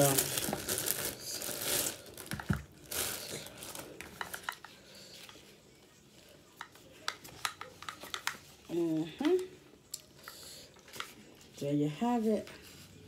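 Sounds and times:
plastic wrapping crinkling: 0:00.0 - 0:05.3.

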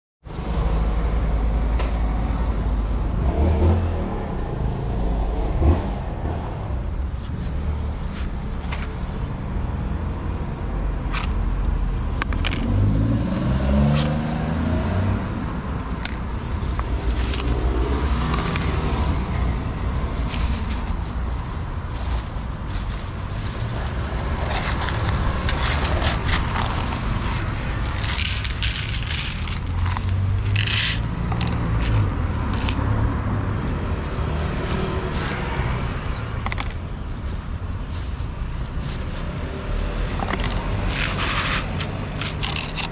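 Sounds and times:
vehicle engine driving past: 0:00.4 - 0:09.7, 0:11.7 - 0:41.6
scrapes and clicks: 0:06.8 - 0:09.6, 0:11.1 - 0:14.4, 0:15.7 - 0:19.4, 0:20.2 - 0:32.9, 0:34.4 - 0:39.1, 0:40.0 - 0:42.9.

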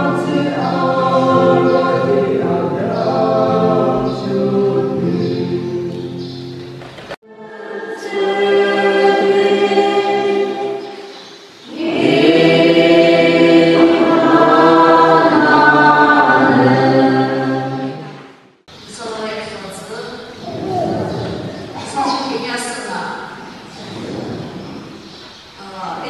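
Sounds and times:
group singing a hymn: 0:00.0 - 0:06.4, 0:07.2 - 0:18.6, 0:22.6 - 0:25.3.

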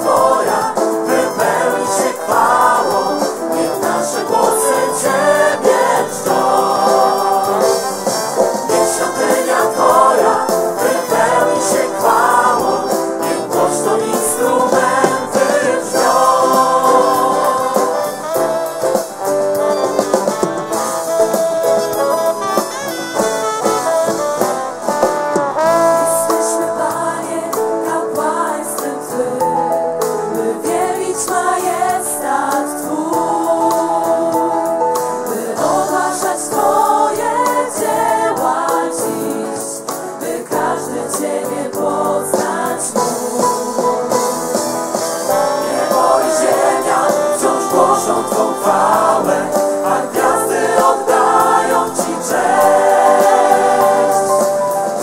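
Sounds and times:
women singing together: 0:00.0 - 0:08.1, 0:08.7 - 0:18.9, 0:26.4 - 0:29.7, 0:30.4 - 0:44.2, 0:45.3 - 0:54.7
acoustic guitar: 0:00.0 - 0:26.8
keyboard: 0:00.0 - 0:55.0.

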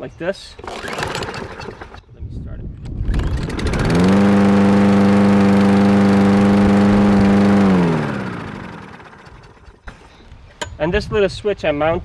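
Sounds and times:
lawn mower engine: 0:00.6 - 0:02.0, 0:03.0 - 0:10.0.

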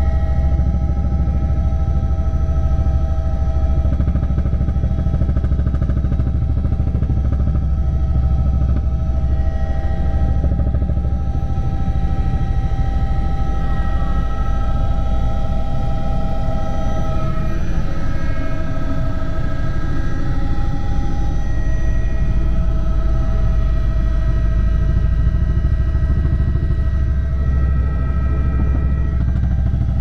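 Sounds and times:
helicopter rotor drone: 0:00.0 - 0:30.0
high whine: 0:08.6 - 0:30.0.

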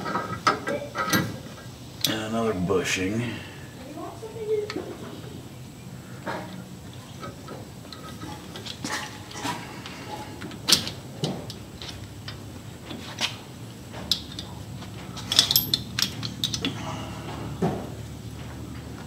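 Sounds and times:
small metal clinks: 0:14.1 - 0:16.8.

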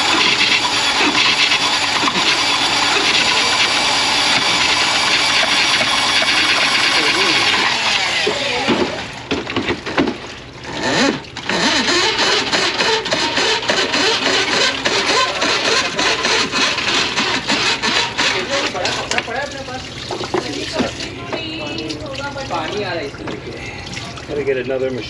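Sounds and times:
rapid cable rattle and clatter: 0:00.0 - 0:21.1
drain-cleaning machine running: 0:00.0 - 0:25.0.

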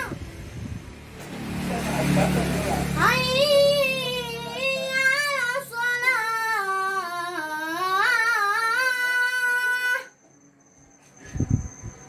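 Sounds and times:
boy chanting: 0:02.9 - 0:10.2.

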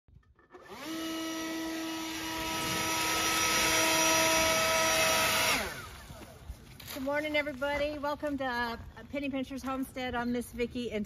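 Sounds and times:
leaf blower electric whine: 0:00.4 - 0:06.7.

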